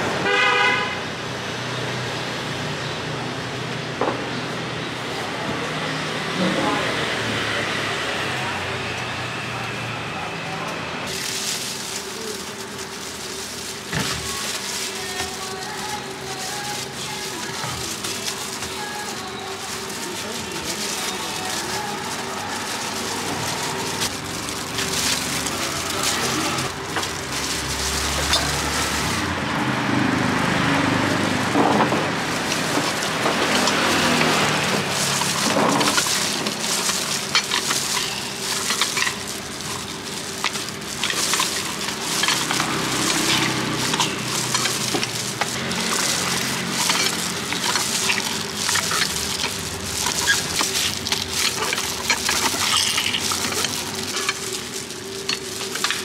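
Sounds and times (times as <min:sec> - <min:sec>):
oranges handled in plastic bowl: 0:11.1 - 0:29.3, 0:31.0 - 0:56.0.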